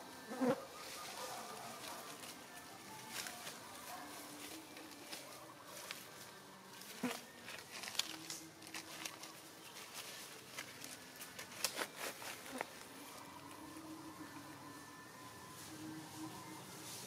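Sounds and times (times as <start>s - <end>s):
leaves rustling: 0.0s - 17.0s
dry leaves crackling: 0.8s - 17.0s
faint insect buzzing: 6.8s - 7.3s.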